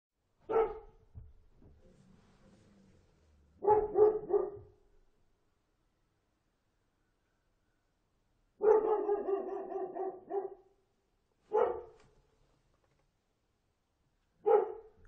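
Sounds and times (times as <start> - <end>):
dog barking: 0.4 - 1.0, 3.6 - 4.8, 8.6 - 10.8, 11.5 - 12.0, 14.4 - 15.0.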